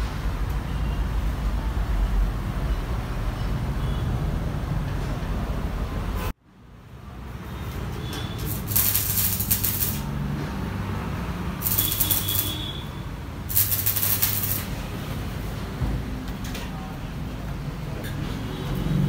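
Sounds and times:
tool scraping sheet metal: 0:08.5 - 0:10.0, 0:11.6 - 0:12.6, 0:13.5 - 0:14.7.

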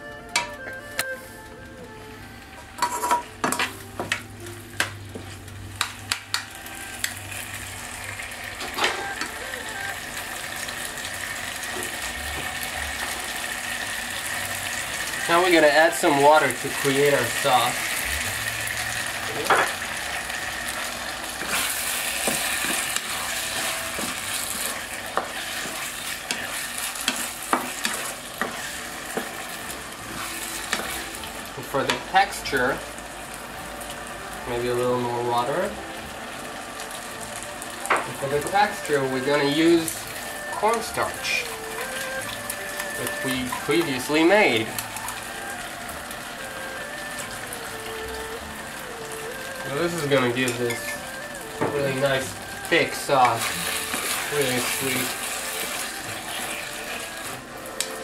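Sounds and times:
food sizzling in a wok: 0:02.8 - 0:58.0
spatula scraping and knocking pan: 0:21.4 - 0:29.4, 0:30.1 - 0:31.0.

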